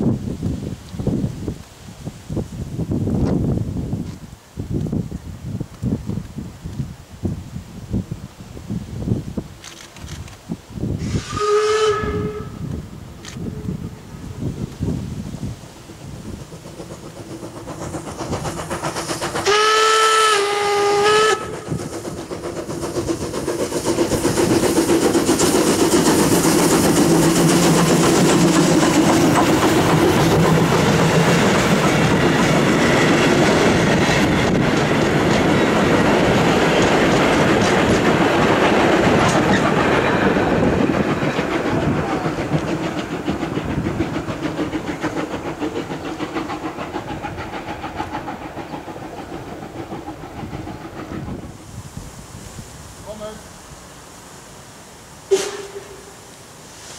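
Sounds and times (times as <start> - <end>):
train rumbling on rails: 0.0 - 56.9
steam whistle: 11.0 - 12.7, 19.4 - 21.6, 55.3 - 56.2.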